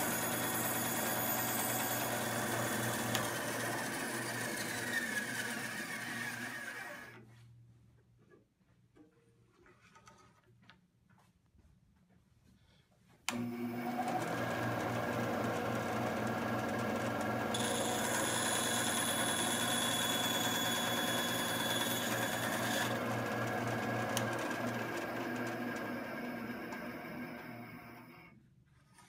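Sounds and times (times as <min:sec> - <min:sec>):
band saw humming: 0:00.0 - 0:07.2, 0:17.2 - 0:24.4
saw blade whining through wood: 0:00.0 - 0:07.3, 0:13.3 - 0:28.3.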